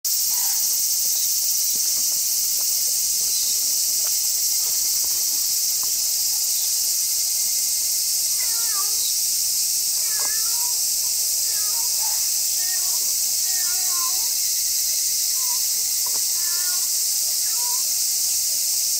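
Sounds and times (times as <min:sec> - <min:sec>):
insect chorus: 0:00.1 - 0:18.9
cat meowing: 0:10.0 - 0:10.7, 0:11.5 - 0:14.3, 0:16.4 - 0:17.6.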